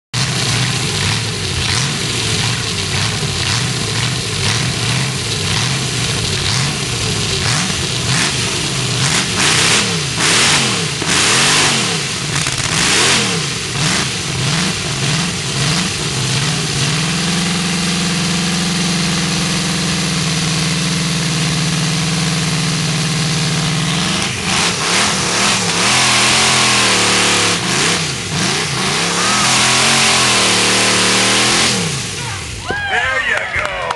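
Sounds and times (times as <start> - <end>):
saw engine revving: 0.2 - 18.5, 22.0 - 32.6.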